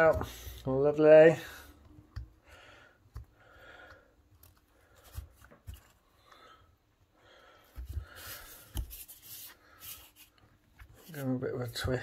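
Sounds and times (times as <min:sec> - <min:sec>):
rubber rubbing and scuffing: 0:07.6 - 0:11.9.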